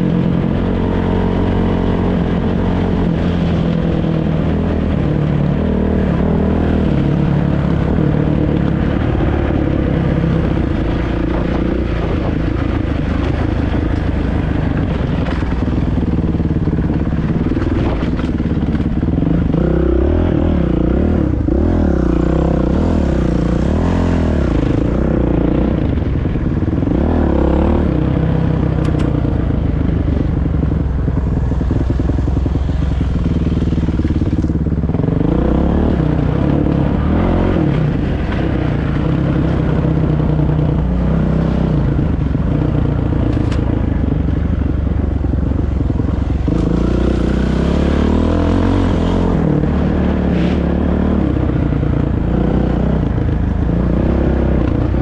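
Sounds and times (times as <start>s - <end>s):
dirt bike engine revving: 45.8s - 55.0s.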